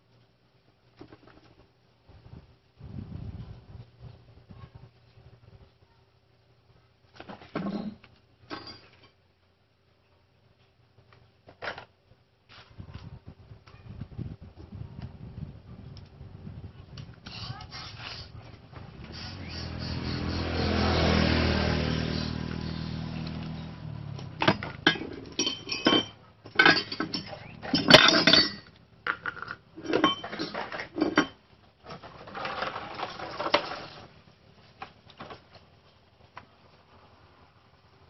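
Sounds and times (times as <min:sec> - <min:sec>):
metal tools clinking: 0:07.7 - 0:09.2, 0:24.4 - 0:28.8, 0:29.4 - 0:31.4
air rushing from hose into tube: 0:17.2 - 0:18.4.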